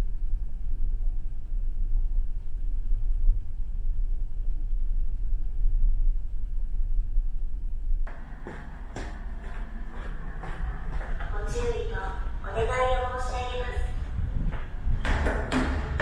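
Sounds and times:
ferry engine rumble: 0:08.1 - 0:15.0.

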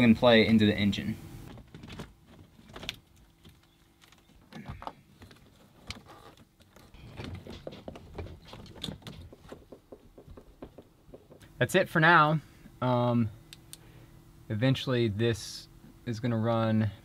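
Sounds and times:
cables rustling and scraping: 0:01.4 - 0:11.6.

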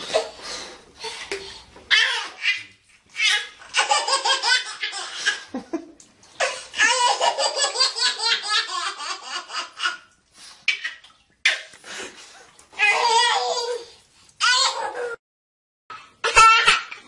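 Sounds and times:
baby laughing: 0:01.9 - 0:05.5, 0:06.4 - 0:10.1, 0:16.2 - 0:17.0.

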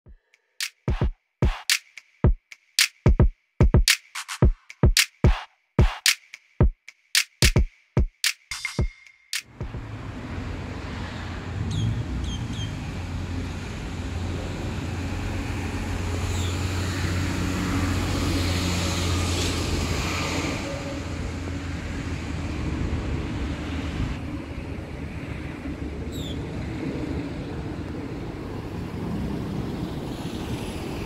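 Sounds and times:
road traffic hum: 0:09.4 - 0:31.0
vehicle passing: 0:09.5 - 0:31.0.

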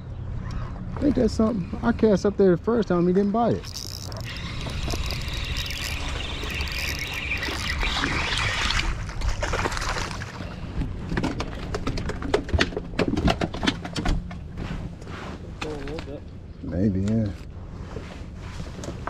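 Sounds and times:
fishing reel whirring: 0:03.5 - 0:09.0.

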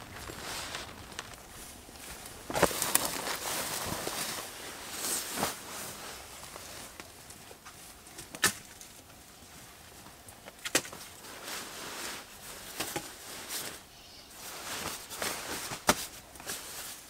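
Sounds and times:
fabric rustling: 0:00.0 - 0:07.0, 0:11.2 - 0:17.0.

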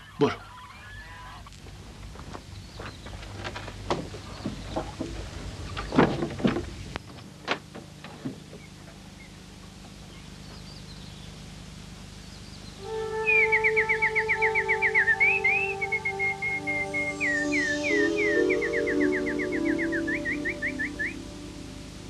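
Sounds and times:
faint steady hum: 0:00.0 - 0:22.0
music with high trill: 0:12.9 - 0:22.0.

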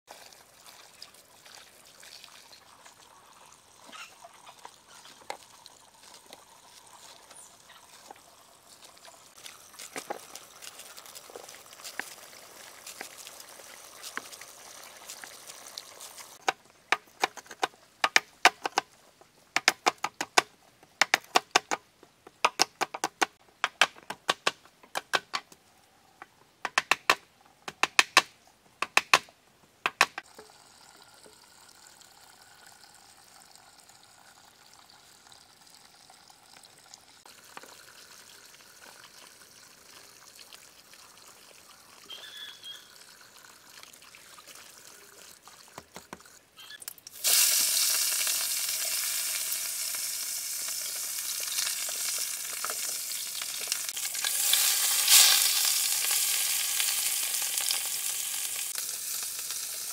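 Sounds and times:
water trickling: 0:00.1 - 0:16.4, 0:30.2 - 0:59.9.

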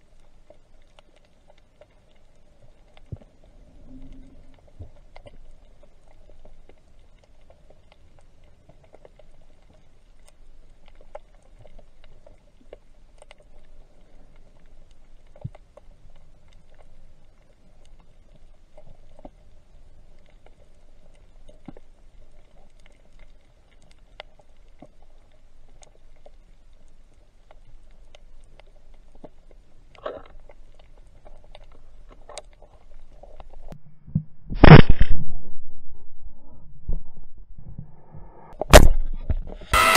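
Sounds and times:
faint steady hiss: 0:00.0 - 0:33.9
underwater clicks and crackles: 0:00.0 - 0:39.8.

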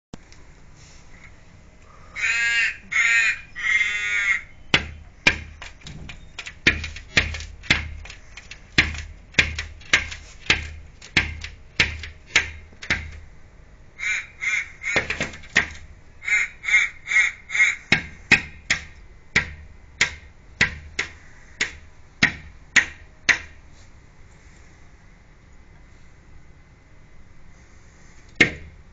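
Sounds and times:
crow cawing: 0:02.0 - 0:04.6, 0:14.0 - 0:15.4, 0:16.2 - 0:18.1
bird rapping on window glass: 0:02.9 - 0:13.3, 0:14.0 - 0:23.6.

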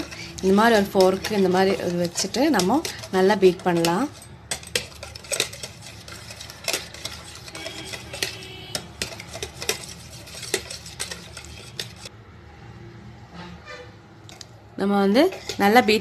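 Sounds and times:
whisk clicking against bowl: 0:00.0 - 0:12.1.

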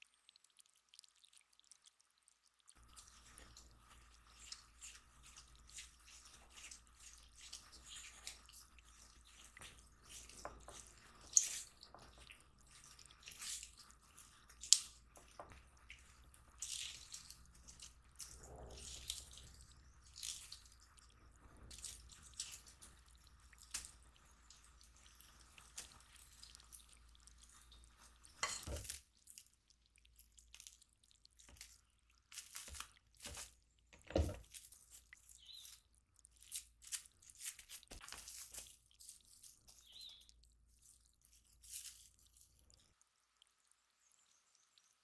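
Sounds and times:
plastic wrap crinkling: 0:31.4 - 0:33.6, 0:34.2 - 0:42.7.

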